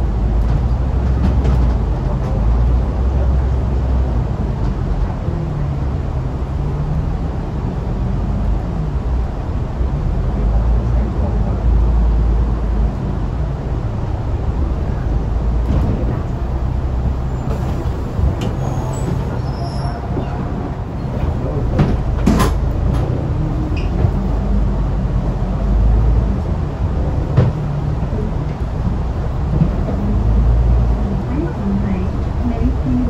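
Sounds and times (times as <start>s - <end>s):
bus diesel engine idling: 0.0s - 33.0s
bus door mechanism clunk: 15.6s - 24.4s.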